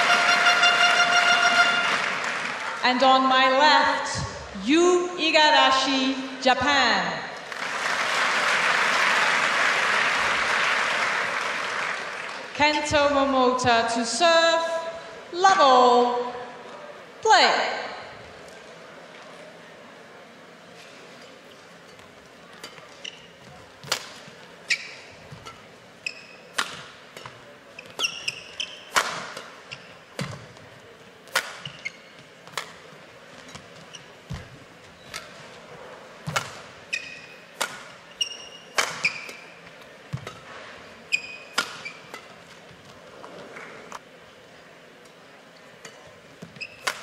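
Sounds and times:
low hall hum: 0.0 - 47.0
shoes squeaking on court: 20.7 - 30.7, 31.3 - 44.0, 45.8 - 47.0
rackets striking shuttlecock: 23.8 - 25.7, 26.4 - 29.6, 31.2 - 33.6, 36.2 - 40.5, 41.5 - 42.6, 45.8 - 47.0.

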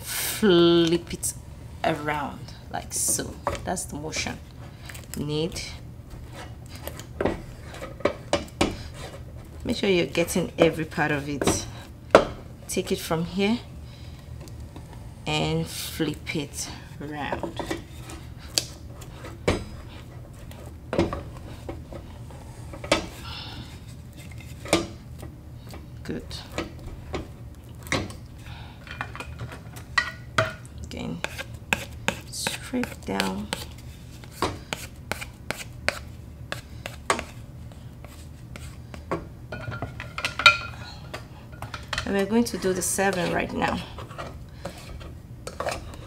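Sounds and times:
low steady hum: 0.0 - 46.0
spatula scraping dough in a pan: 5.6 - 11.8, 31.1 - 39.0, 41.6 - 46.0.

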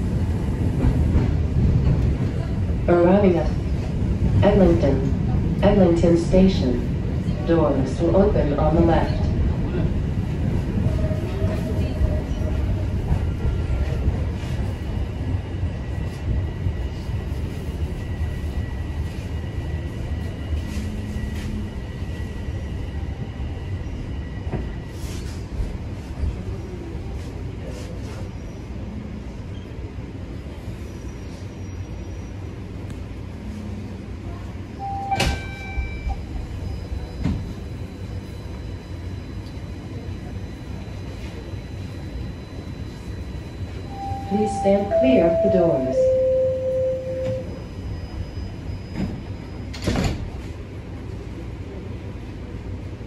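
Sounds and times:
subway car rumble and hum: 0.0 - 53.0
door-closing chime: 34.9 - 35.9.

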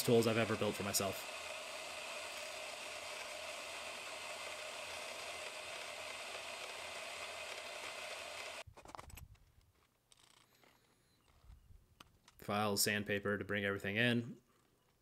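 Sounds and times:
saw motor cutting metal: 0.0 - 8.6.

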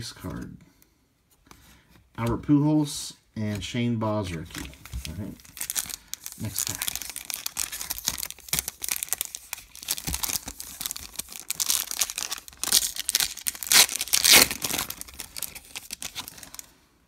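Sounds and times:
foil wrapper tearing and crinkling: 5.0 - 16.7.

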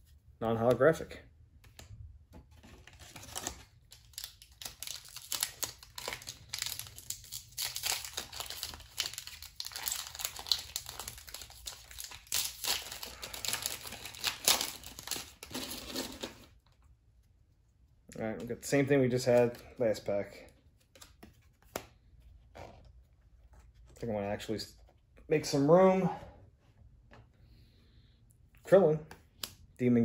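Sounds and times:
foil wrapper crinkling: 2.8 - 16.5.

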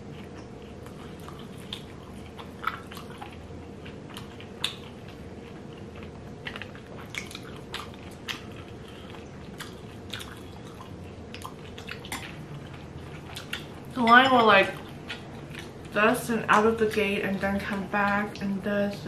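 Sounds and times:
people chewing: 0.0 - 14.0, 14.7 - 16.0
steady low hum: 0.0 - 19.0.

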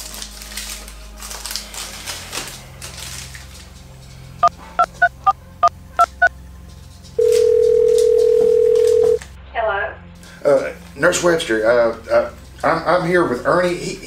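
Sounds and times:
telephone keypad beeps: 6.0 - 6.3, 7.2 - 9.2
phone ringing tone: 7.2 - 9.2.

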